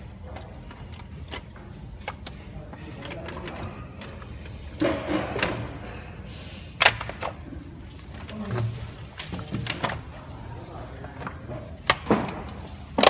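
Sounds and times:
plastic clatter and scrape: 0.3 - 5.9.

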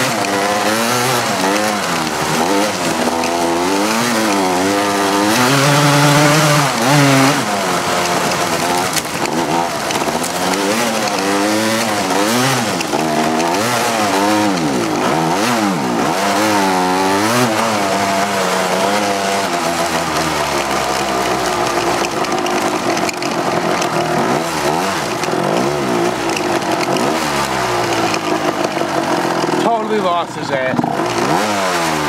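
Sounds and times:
atv engine revving: 0.0 - 32.0.

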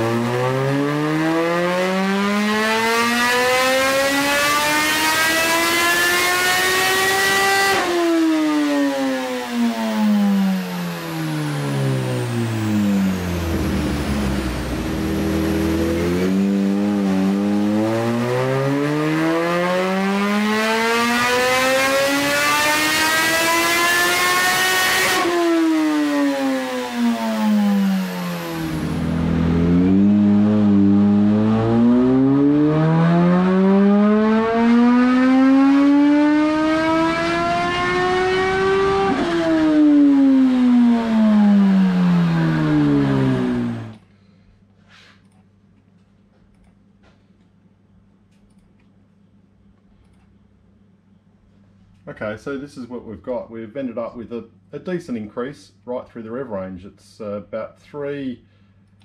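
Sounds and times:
motorcycle engine revving: 0.0 - 44.0.

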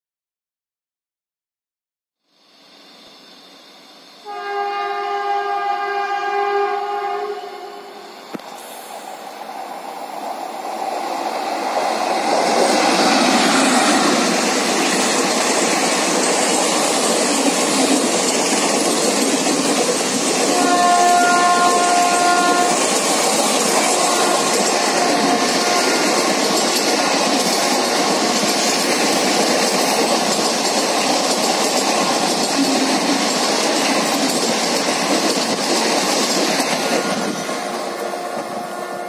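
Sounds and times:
train rumble and rail noise: 2.4 - 39.0
locomotive horn: 4.2 - 8.1, 20.5 - 22.8, 23.8 - 26.3, 37.8 - 39.0.

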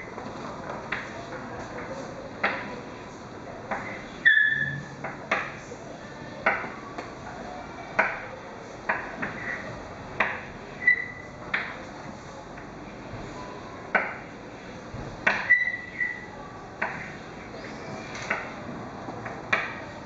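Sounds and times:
chalk squeaks: 4.2 - 4.9, 10.8 - 11.3, 15.3 - 16.3
chalk tapping on a blackboard: 5.0 - 5.6, 8.9 - 11.9, 15.1 - 16.2, 16.8 - 17.3.

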